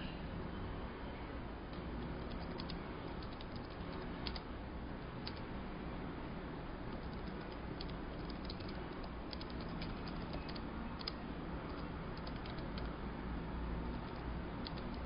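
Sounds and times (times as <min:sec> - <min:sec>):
low hum and hiss: 0:00.0 - 0:15.0
computer keyboard typing: 0:01.7 - 0:04.5, 0:05.2 - 0:05.4, 0:06.9 - 0:13.0, 0:13.8 - 0:15.0.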